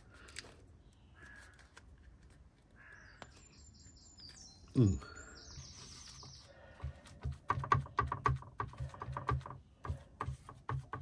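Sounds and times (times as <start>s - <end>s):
paintbrush knocking on plastic palette: 6.8s - 11.0s.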